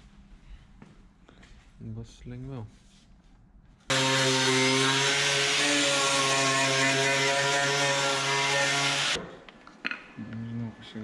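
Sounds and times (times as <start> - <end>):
power tool running: 3.9 - 9.2.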